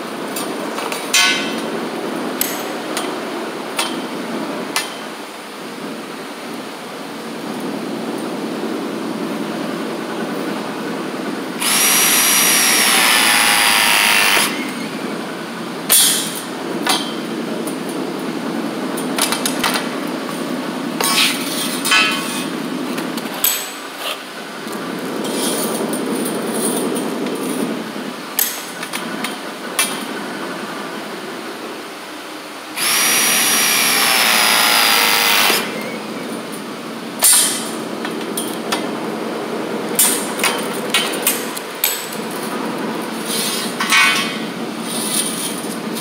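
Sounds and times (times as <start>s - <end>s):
press tool motor whine: 11.6s - 14.8s, 32.8s - 36.1s.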